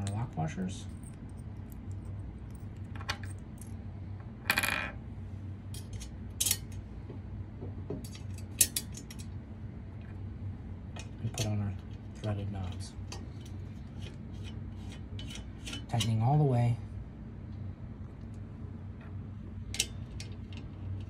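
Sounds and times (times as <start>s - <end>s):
metal washers clinking and rattling: 0.0s - 3.8s, 5.7s - 6.8s, 19.7s - 21.0s
low steady hum: 0.0s - 21.0s.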